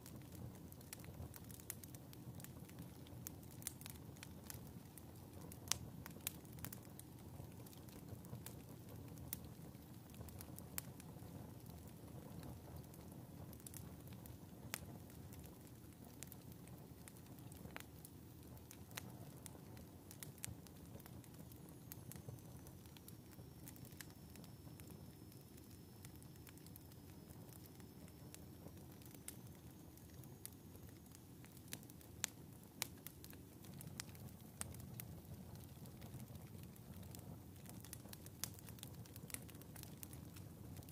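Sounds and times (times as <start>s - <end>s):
fire crackling and popping: 0.0s - 40.9s
low sound of flames: 0.0s - 40.9s.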